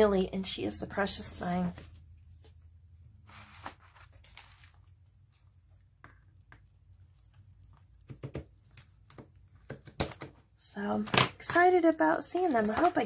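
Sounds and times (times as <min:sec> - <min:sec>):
paper and fabric rustling: 0:01.2 - 0:05.8, 0:12.2 - 0:13.0.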